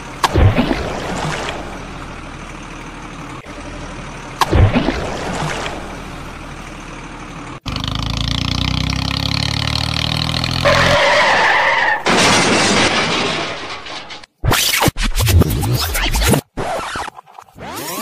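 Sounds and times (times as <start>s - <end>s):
engine running: 0.0s - 11.2s
vehicle skid with falling pitch: 10.5s - 12.1s.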